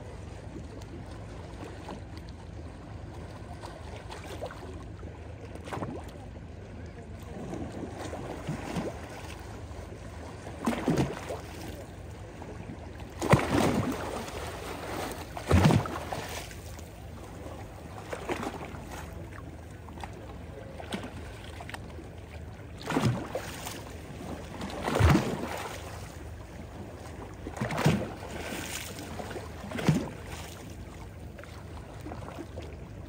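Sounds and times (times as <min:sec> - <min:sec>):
steady wash of water: 0:00.0 - 0:33.0
small waves splashing on stony shore: 0:07.3 - 0:11.9, 0:12.9 - 0:22.0, 0:22.7 - 0:32.8.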